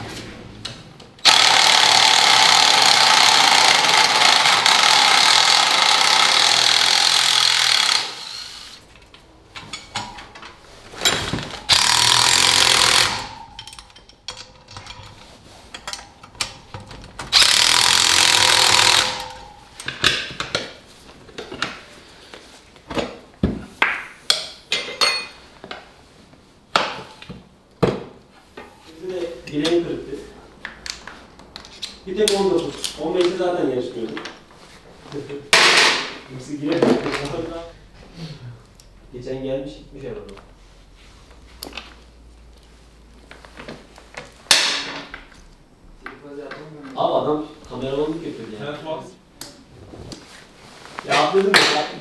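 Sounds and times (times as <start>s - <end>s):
power tool running: 1.2s - 8.8s, 11.7s - 13.4s, 17.3s - 19.4s
tool handling clicks and knocks: 8.9s - 21.9s.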